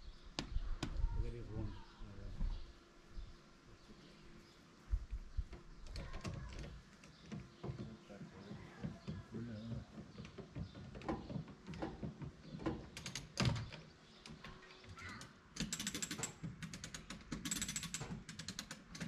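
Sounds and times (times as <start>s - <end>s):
rapid ratchet clicks: 12.9s - 13.6s, 15.0s - 19.0s.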